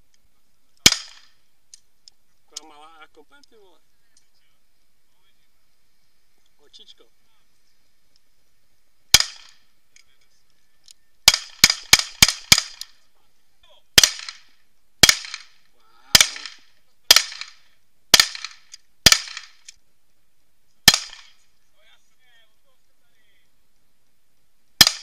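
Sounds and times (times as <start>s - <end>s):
pistol shots with echo: 0.8s - 1.4s, 9.1s - 9.6s, 11.2s - 13.0s, 14.0s - 19.6s, 20.8s - 21.4s, 24.8s - 25.0s.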